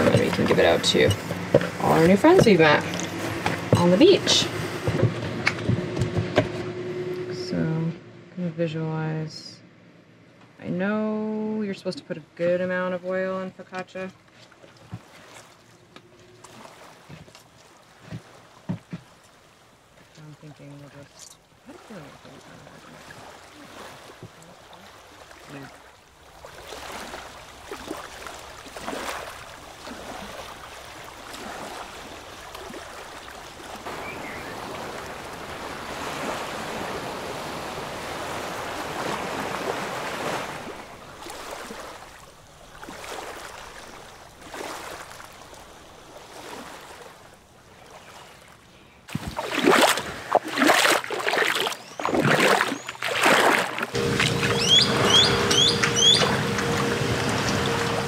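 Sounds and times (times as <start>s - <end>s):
feet splashing in shallow water: 0.0s - 6.2s, 14.2s - 58.0s
small waves washing: 0.0s - 8.3s, 10.7s - 58.0s.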